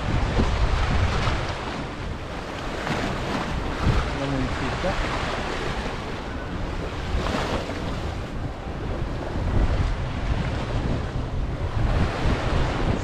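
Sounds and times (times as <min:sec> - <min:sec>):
waves washing against rocks: 0:00.0 - 0:06.0
wind buffeting microphone: 0:00.0 - 0:13.0.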